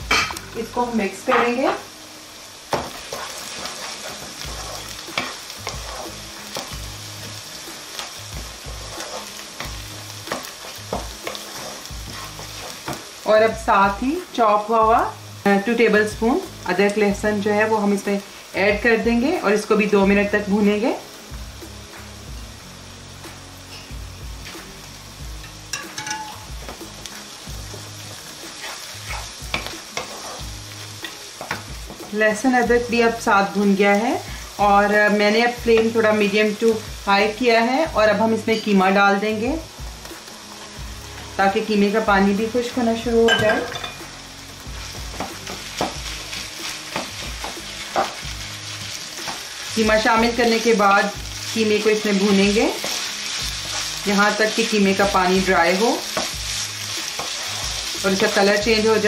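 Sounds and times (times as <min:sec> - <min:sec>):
onions sizzling in hot oil: 0:00.0 - 0:59.0
wooden spatula scraping a pan: 0:02.8 - 0:06.7, 0:07.9 - 0:13.0, 0:26.7 - 0:32.0, 0:44.7 - 0:58.9.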